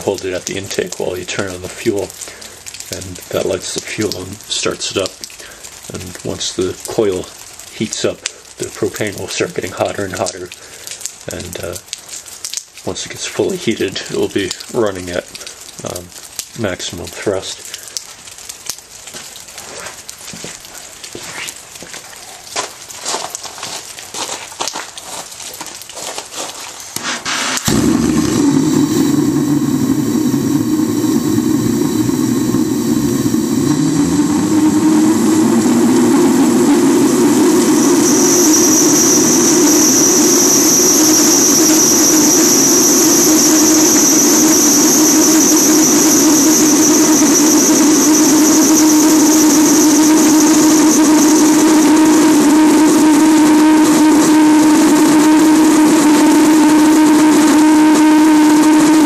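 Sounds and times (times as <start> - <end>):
high whine: 0.0 - 4.2, 27.0 - 59.0
jet engine roaring: 27.0 - 59.0.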